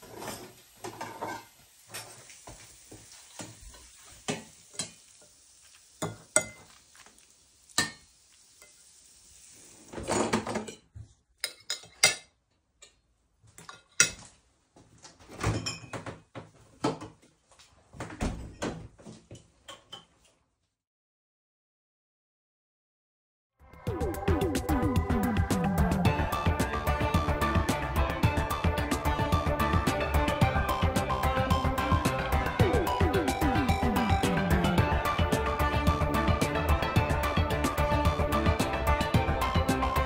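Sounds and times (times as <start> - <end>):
faint steady hiss: 0.0 - 10.1
cutlery clinking against dishes: 10.3 - 13.0.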